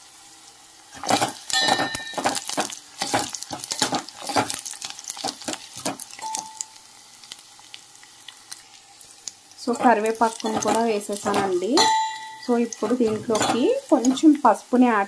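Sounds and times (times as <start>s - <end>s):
onions and spices sizzling in oil: 0.0s - 15.0s
metal spoon clinking in pan: 1.5s - 2.4s, 6.2s - 6.8s, 10.3s - 14.2s.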